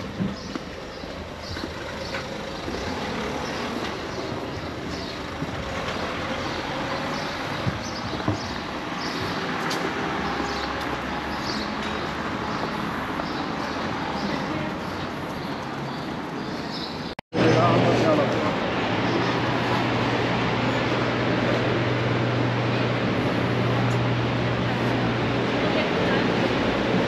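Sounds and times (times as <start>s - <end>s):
hiss of passing vehicles: 18.2s - 27.0s.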